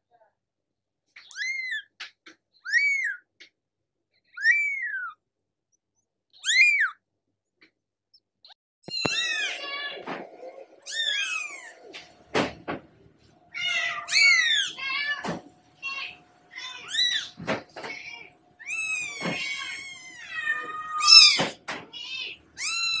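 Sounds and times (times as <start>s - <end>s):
kittens mewing: 1.2s - 2.0s, 2.7s - 3.3s, 4.3s - 5.2s, 6.4s - 7.0s, 8.8s - 12.1s, 13.5s - 23.0s.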